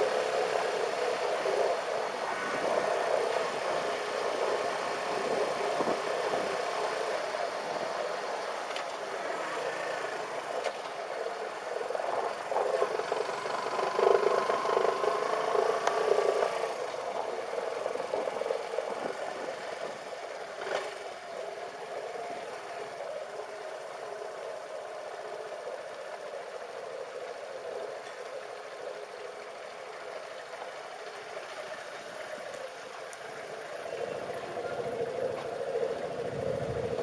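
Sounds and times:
road and wind noise: 0.0s - 37.0s
motorcycle engine running: 12.5s - 18.9s.

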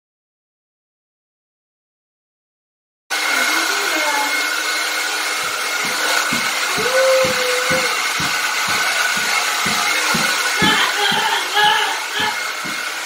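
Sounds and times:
hair dryer blowing: 3.1s - 13.0s
low thumps: 5.4s - 13.0s.

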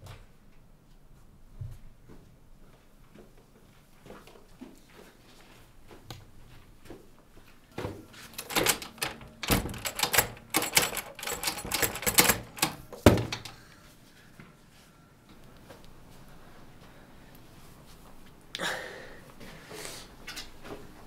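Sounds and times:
door handle rattling: 8.4s - 13.6s.

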